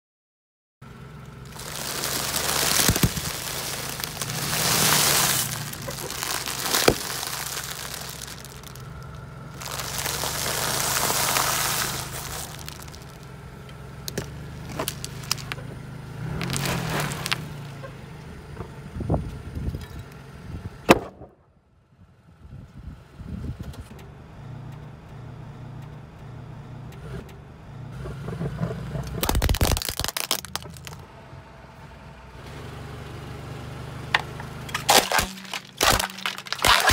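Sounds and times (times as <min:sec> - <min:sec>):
car engine idling: 0:00.8 - 0:20.8
crunching and crackling snack bags: 0:01.4 - 0:13.3, 0:14.0 - 0:15.6, 0:16.2 - 0:17.8, 0:29.1 - 0:31.0, 0:34.2 - 0:36.9
tyre crushing objects: 0:01.5 - 0:13.2, 0:14.1 - 0:15.6, 0:16.3 - 0:17.8, 0:29.2 - 0:31.0, 0:34.2 - 0:36.9
sharp cracks: 0:01.5 - 0:13.3, 0:14.0 - 0:15.6, 0:29.1 - 0:31.0, 0:34.2 - 0:36.9.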